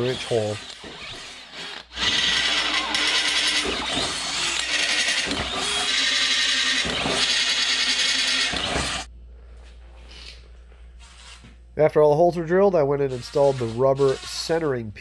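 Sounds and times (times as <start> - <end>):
cordless drill grinding into metal: 0.0 - 9.1.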